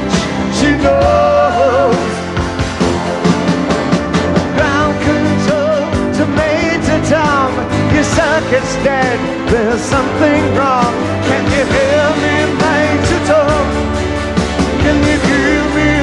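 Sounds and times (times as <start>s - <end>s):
person singing lead melody: 0.0s - 2.3s, 4.5s - 14.0s
live rock band playing: 0.0s - 16.0s.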